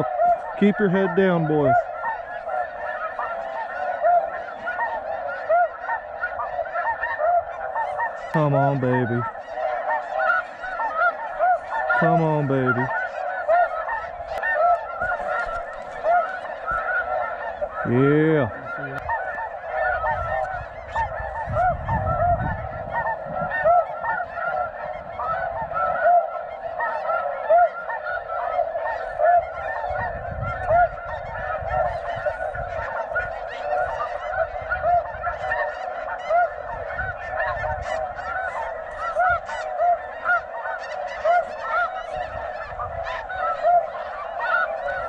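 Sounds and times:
geese honking: 0.0s - 45.0s.

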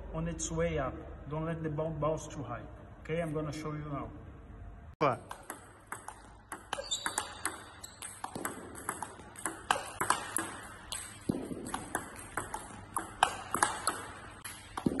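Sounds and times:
table tennis ball clicks: 5.2s - 15.0s.

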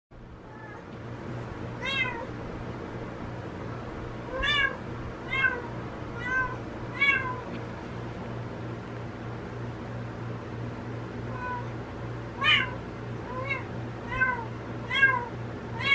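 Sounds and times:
cat meowing: 0.5s - 0.9s, 1.8s - 2.3s, 4.3s - 7.5s, 11.3s - 11.7s, 12.4s - 15.9s.

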